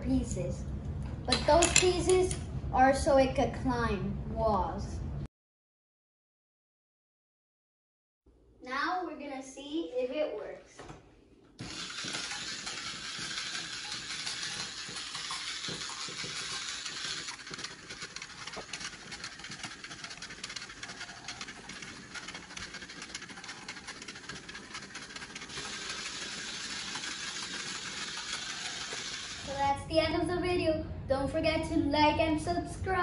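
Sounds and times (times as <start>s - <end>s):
toy robot motor whirring: 11.6s - 29.6s.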